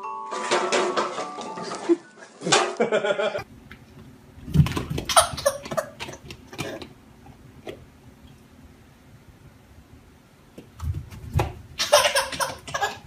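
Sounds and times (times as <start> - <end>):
baby laughing and squealing: 11.8 - 13.0.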